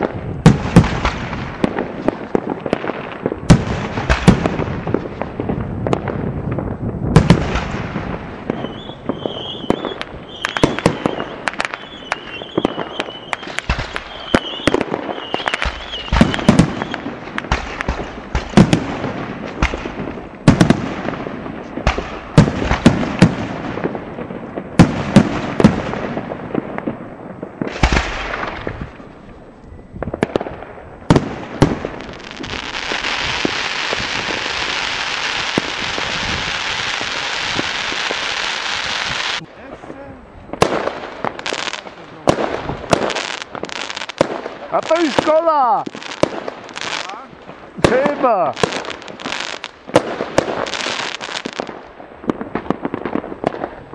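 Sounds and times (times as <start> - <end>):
fireworks bangs: 0.0 - 53.9
wavering high whistle: 8.6 - 17.0.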